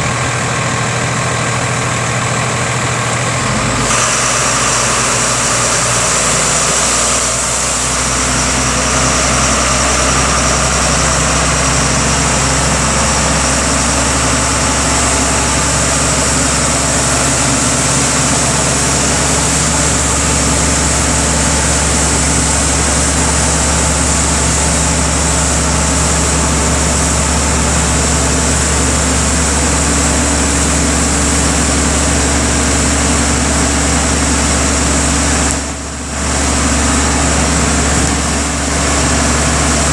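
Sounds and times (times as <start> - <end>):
truck diesel engine running: 0.0 - 39.9.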